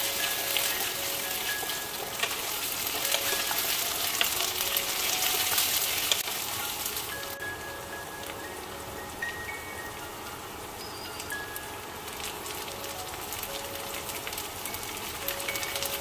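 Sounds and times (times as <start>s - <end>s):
spatula stirring in wok: 0.0s - 7.1s
food sizzling in hot oil: 0.0s - 16.0s.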